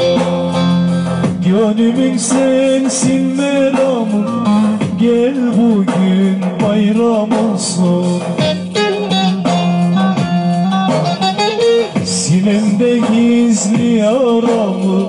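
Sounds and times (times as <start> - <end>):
guitar playing: 0.0 - 5.6, 7.0 - 13.6
man singing folk song: 1.4 - 8.6, 12.0 - 15.0.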